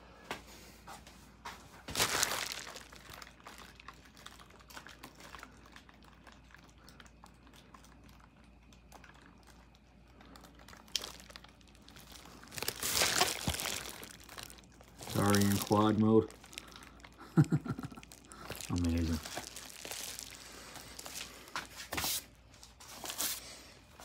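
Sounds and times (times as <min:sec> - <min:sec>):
bubble wrap crinkling: 0:01.8 - 0:06.6, 0:10.2 - 0:24.0.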